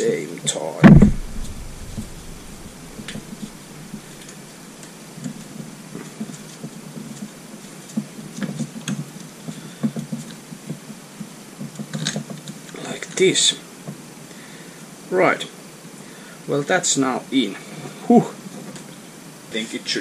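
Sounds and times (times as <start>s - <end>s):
soft handling rustles: 1.0s - 10.4s.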